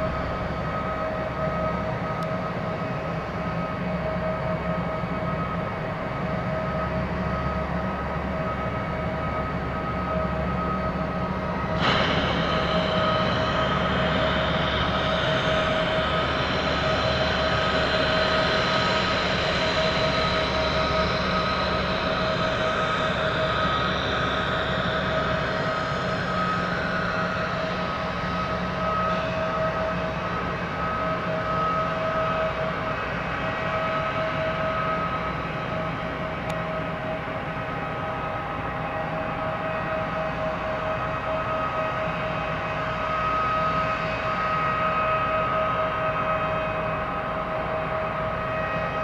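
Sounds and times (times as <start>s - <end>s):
jet engine whine and rush: 0.0s - 49.0s.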